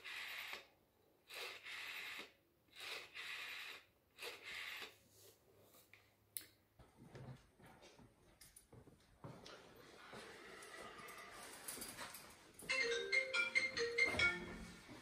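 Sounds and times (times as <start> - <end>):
rotary telephone dialling: 0.0 - 0.7, 1.3 - 4.9.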